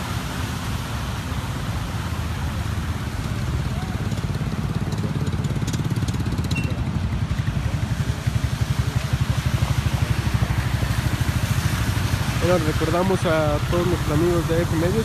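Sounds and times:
tyres hissing on flooded road: 0:00.0 - 0:15.0.

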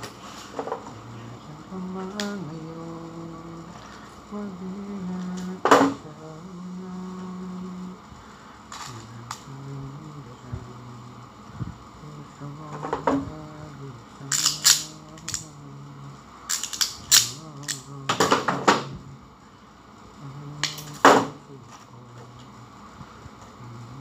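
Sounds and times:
faint low hum: 0:00.0 - 0:24.0
wires clicking into terminal blocks: 0:00.8 - 0:03.8, 0:12.6 - 0:15.7, 0:16.5 - 0:19.0, 0:20.5 - 0:21.5.

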